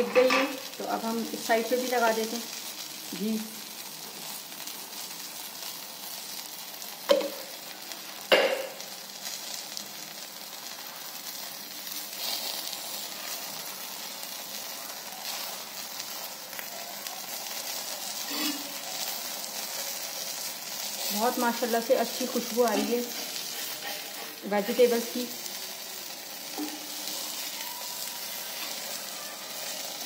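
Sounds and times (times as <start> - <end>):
ghee sizzling on hot pan: 0.0 - 30.0.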